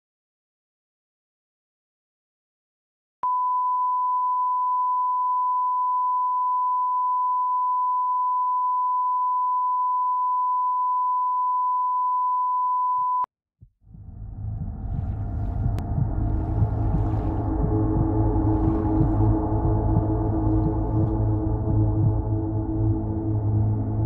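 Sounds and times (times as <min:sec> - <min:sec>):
steady sine-wave test tone: 0:03.2 - 0:13.3
low rumbling: 0:13.6 - 0:24.0.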